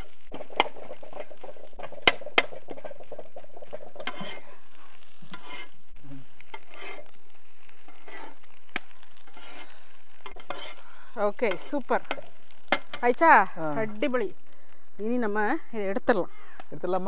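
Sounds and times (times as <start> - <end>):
food sizzling in a pan: 0.0 - 17.0
utensil striking metal pan: 0.4 - 4.4, 11.4 - 13.2.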